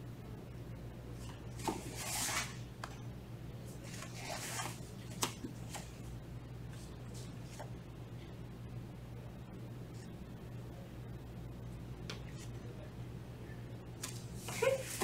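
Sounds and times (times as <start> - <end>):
steady low hum: 0.0 - 15.0
rustling on floor mat: 1.2 - 3.0, 3.7 - 6.1.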